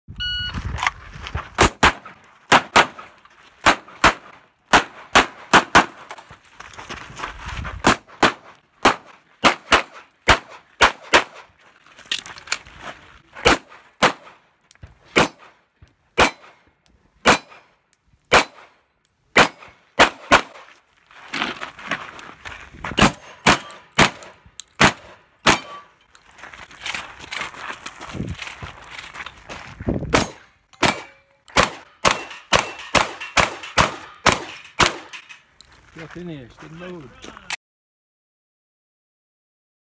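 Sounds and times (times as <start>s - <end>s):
pistol shots: 1.6s - 6.0s, 7.8s - 11.5s, 13.4s - 14.4s, 15.1s - 15.6s, 16.2s - 16.6s, 17.2s - 17.7s, 18.3s - 18.8s, 19.4s - 20.6s, 23.0s - 25.9s, 30.1s - 35.2s
steel plate targets ringing: 25.5s - 26.0s, 30.2s - 35.4s.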